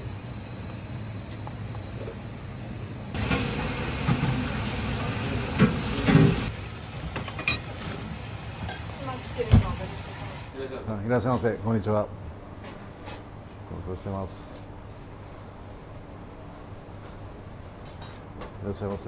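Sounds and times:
fish sizzling under grill: 0:03.2 - 0:10.6.

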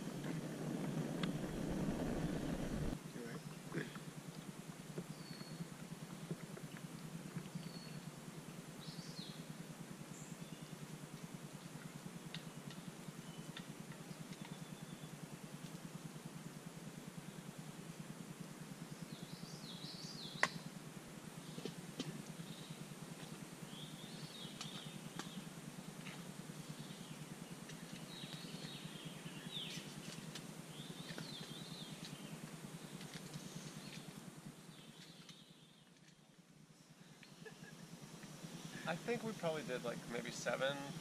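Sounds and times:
campfire popping: 0:00.0 - 0:03.0
birds chirping: 0:00.0 - 0:04.0
steady low hum: 0:00.0 - 0:41.0.

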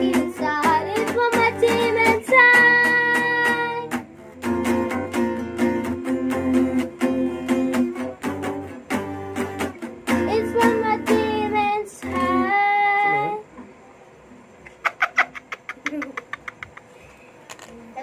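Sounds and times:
girl singing: 0:00.0 - 0:04.1, 0:10.1 - 0:13.5
acoustic guitar strumming: 0:00.0 - 0:13.4
laughter: 0:14.6 - 0:17.0.

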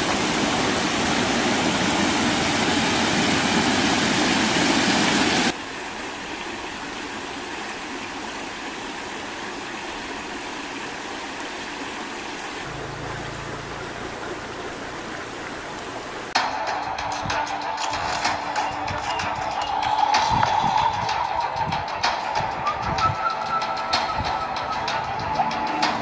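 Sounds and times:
waterfall splashing into pool: 0:00.0 - 0:16.8
running water: 0:00.0 - 0:26.0.

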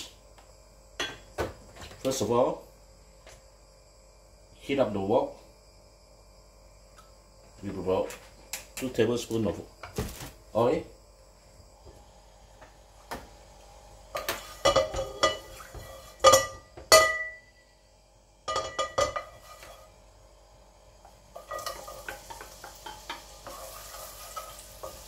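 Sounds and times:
shallots sizzling in hot oil: 0:13.4 - 0:16.2, 0:18.5 - 0:25.0
metal spoon clinking on bowls: 0:14.2 - 0:15.5, 0:16.2 - 0:17.4, 0:18.5 - 0:19.7, 0:21.4 - 0:23.2.

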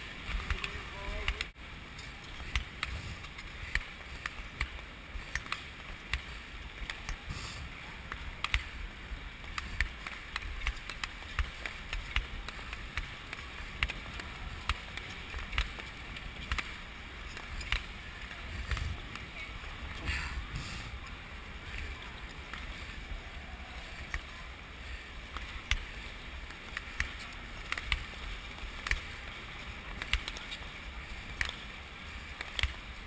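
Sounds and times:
wind rumble on microphone: 0:01.8 - 0:03.8, 0:06.5 - 0:25.3
skate blades scraping ice: 0:09.4 - 0:33.0.

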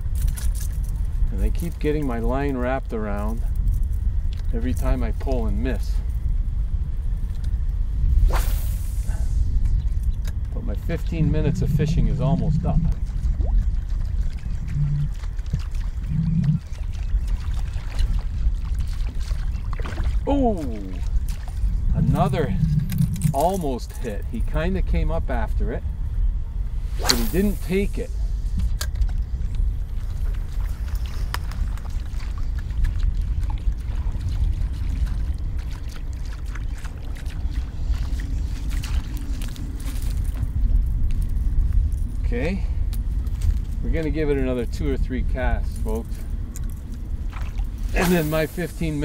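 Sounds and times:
steady low rumble: 0:00.0 - 0:49.0
water sloshing and lapping: 0:08.2 - 0:24.5, 0:28.6 - 0:42.1, 0:45.4 - 0:49.0
brief low hums: 0:10.6 - 0:13.5, 0:14.4 - 0:16.7, 0:20.2 - 0:23.8.

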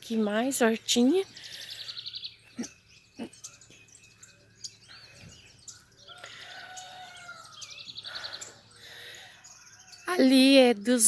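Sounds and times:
small birds singing and chirping: 0:00.0 - 0:11.0.

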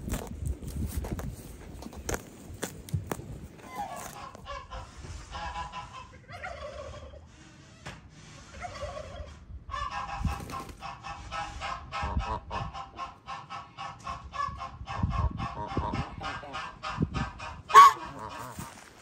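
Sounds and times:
geese honking: 0:03.6 - 0:07.0, 0:15.6 - 0:19.0.

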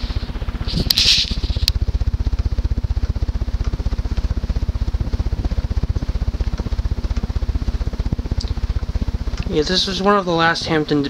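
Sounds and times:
ceiling fan running: 0:00.0 - 0:11.0.

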